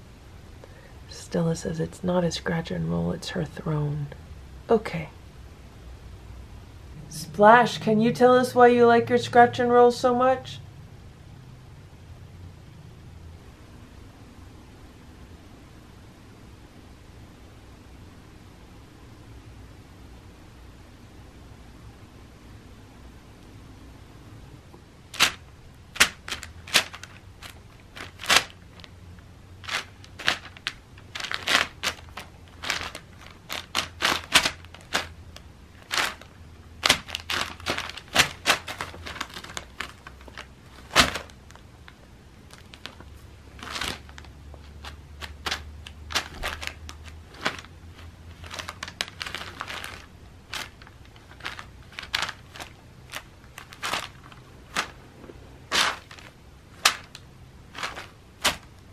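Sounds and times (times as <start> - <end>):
paper crinkling and rustling: 25.1 - 28.9, 29.6 - 58.9.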